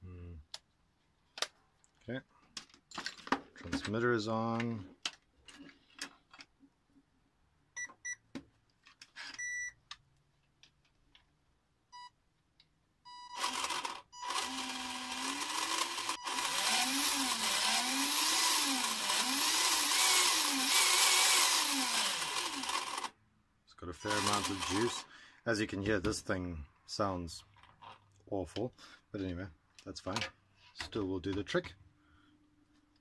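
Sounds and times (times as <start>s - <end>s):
short electronic beeps: 9.4s - 9.8s
electric motor and gear whine: 13.4s - 23.1s, 24.1s - 25.0s.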